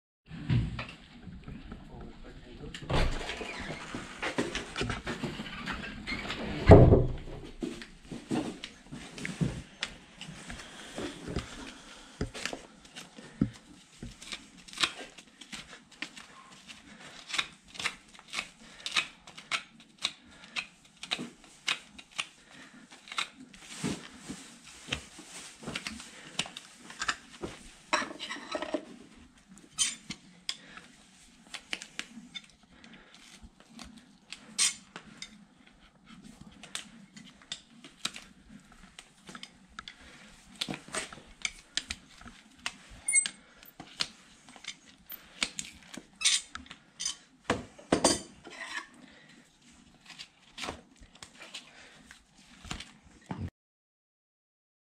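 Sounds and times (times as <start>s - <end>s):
metal tool scraping horse hoof: 28.0s - 28.9s, 43.0s - 43.4s.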